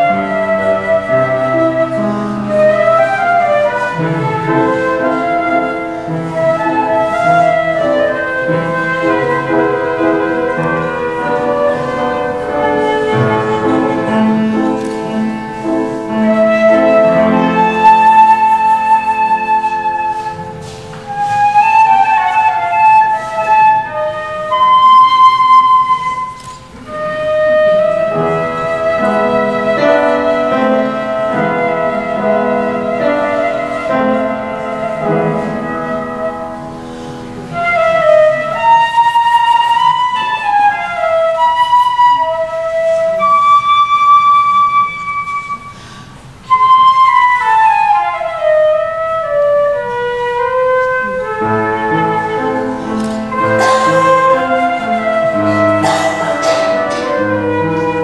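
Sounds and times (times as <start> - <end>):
flute melody: 0.0 - 58.0
keyboard accompaniment: 0.0 - 58.0.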